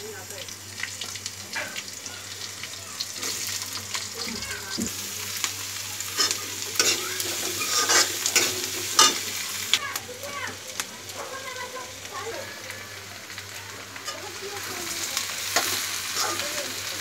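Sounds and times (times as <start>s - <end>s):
onions sizzling in oil: 0.0s - 17.0s
spoon scraping pan: 6.2s - 9.3s.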